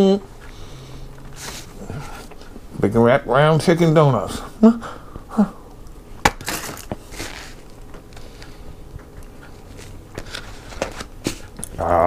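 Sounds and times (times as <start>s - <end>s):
chewing and mouth noises: 7.7s - 10.0s.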